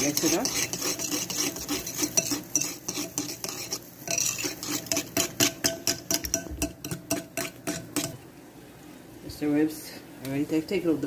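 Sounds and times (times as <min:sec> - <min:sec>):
spoon clinking against bowl: 0:00.0 - 0:08.2.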